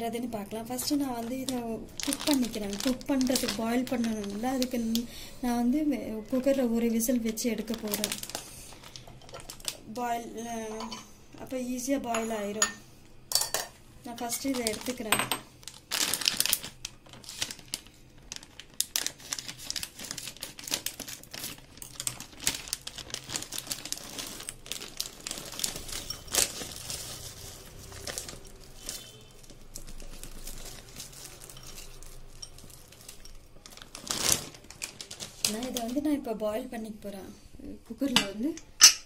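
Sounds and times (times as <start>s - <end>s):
plastic packet crinkling: 0.6s - 5.4s, 6.3s - 10.0s, 14.1s - 36.4s.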